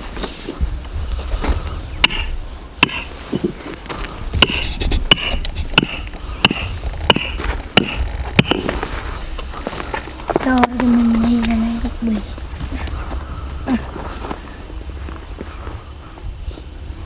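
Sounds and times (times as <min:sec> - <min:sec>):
low wind rumble: 0:00.0 - 0:17.0
footsteps crunching on stony ground: 0:06.6 - 0:16.7.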